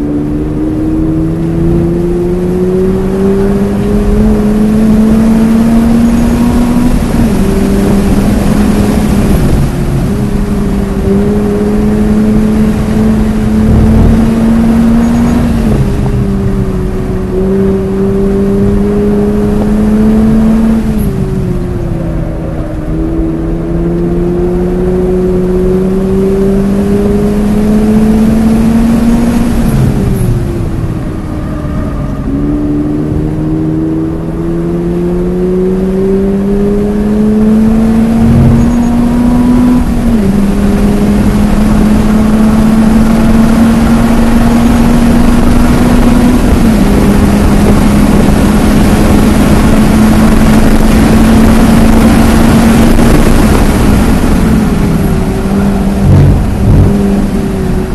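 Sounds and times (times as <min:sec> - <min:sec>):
car engine accelerating: 0:00.0 - 0:57.9.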